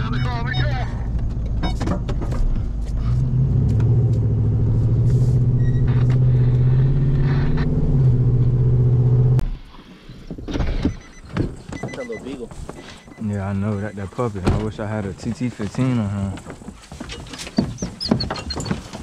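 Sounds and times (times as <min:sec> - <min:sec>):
truck engine running: 0:00.0 - 0:09.4.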